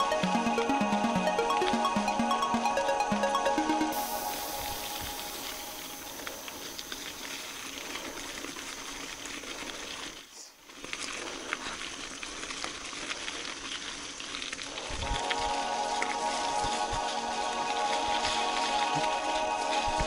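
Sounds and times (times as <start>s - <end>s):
mountain bike on rough trail: 5.0s - 20.0s.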